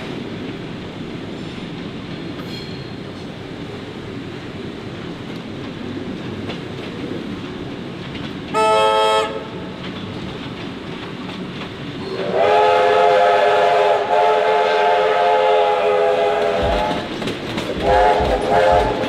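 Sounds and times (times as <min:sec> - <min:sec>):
train wheels rumbling: 0:00.0 - 0:19.0
train whistle: 0:08.5 - 0:09.6, 0:12.0 - 0:19.0.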